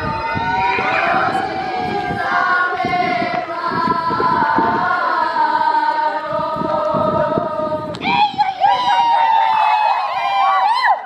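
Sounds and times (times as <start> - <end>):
women singing together: 0.6 - 9.1.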